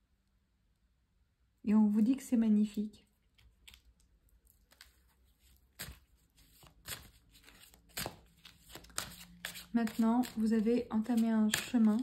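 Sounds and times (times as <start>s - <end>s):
playing cards rustling: 3.4s - 12.0s.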